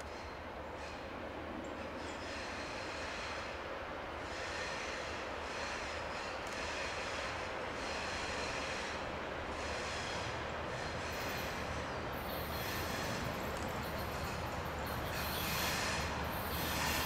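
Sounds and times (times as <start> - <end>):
train wheels on rails: 0.0 - 17.0
locomotive engine drone: 3.5 - 17.0.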